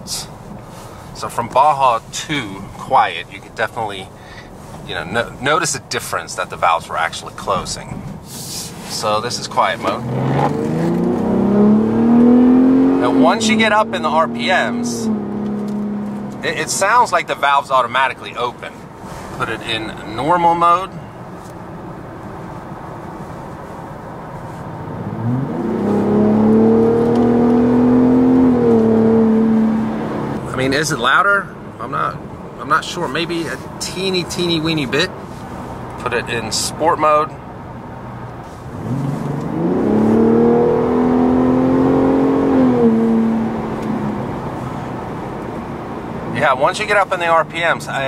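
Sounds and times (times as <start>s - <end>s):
road noise: 0.0s - 48.0s
truck engine accelerating: 9.6s - 17.0s, 24.8s - 30.6s, 38.7s - 46.4s.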